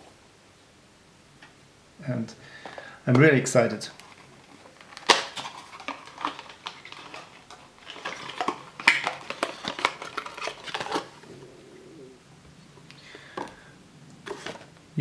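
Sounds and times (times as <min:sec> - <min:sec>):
clicks and clinks of objects handled: 0:03.9 - 0:11.1.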